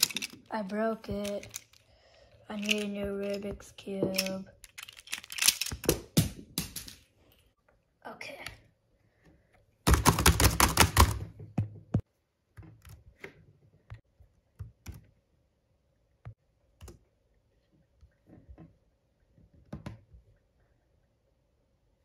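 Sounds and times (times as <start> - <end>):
fast laptop typing: 9.9 - 11.1.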